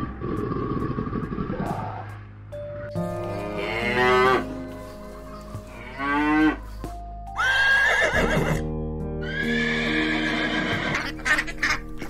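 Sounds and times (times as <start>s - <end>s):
background music: 0.0s - 12.0s
cow mooing: 3.3s - 4.5s
horse whinnying: 7.4s - 8.6s, 9.2s - 11.2s.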